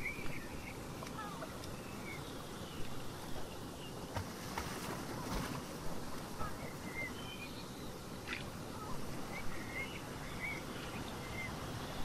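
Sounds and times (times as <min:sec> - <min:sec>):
small birds chirping: 0:00.0 - 0:12.0
ocean surf: 0:08.4 - 0:12.0.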